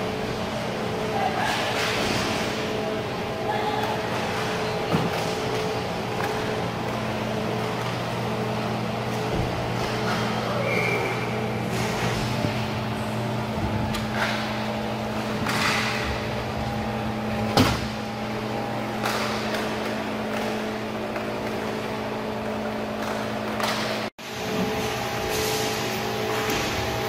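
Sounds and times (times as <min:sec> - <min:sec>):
steady rink hum: 0:00.0 - 0:27.0
hockey sticks and puck clacking: 0:15.4 - 0:16.0, 0:18.9 - 0:24.1.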